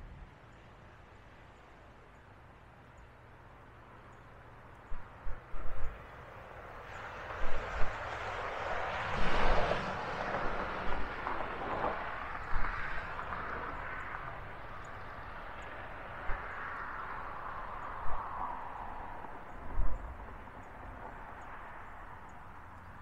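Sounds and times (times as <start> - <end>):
passing vehicle rushing: 5.5 - 23.0.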